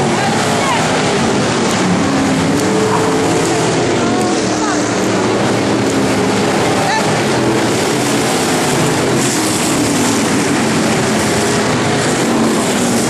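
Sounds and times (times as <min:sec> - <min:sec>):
race car engines droning: 0:00.0 - 0:13.0.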